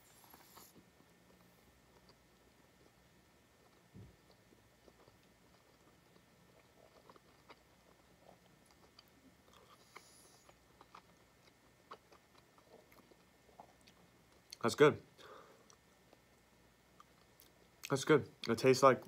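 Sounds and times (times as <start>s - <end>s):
faint chewing with wet mouth clicks: 0.3s - 14.6s, 15.6s - 18.6s.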